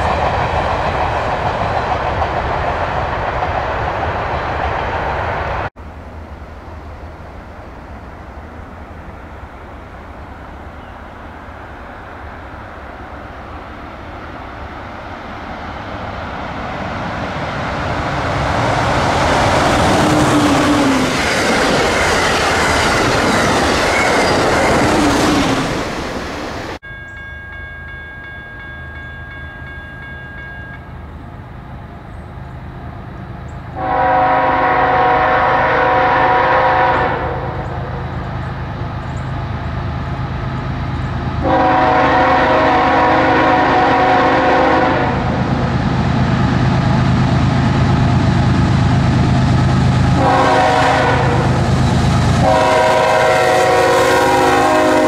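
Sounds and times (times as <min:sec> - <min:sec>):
passenger train passing: 0:00.0 - 0:55.0
diesel locomotive rumble: 0:30.8 - 0:55.0
locomotive horn blast: 0:33.8 - 0:37.7, 0:41.4 - 0:45.3, 0:50.1 - 0:51.6, 0:52.4 - 0:55.0.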